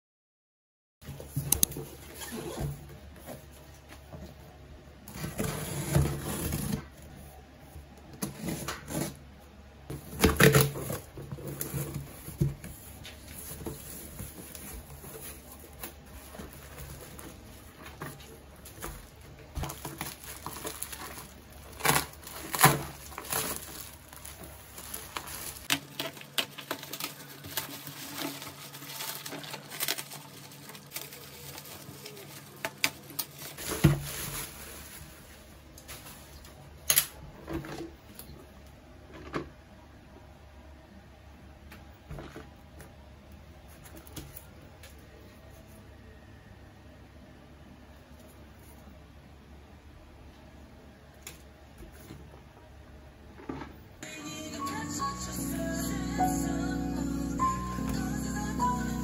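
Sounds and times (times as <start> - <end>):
cardboard and plastic rustling: 1.0 - 9.2, 9.9 - 39.6.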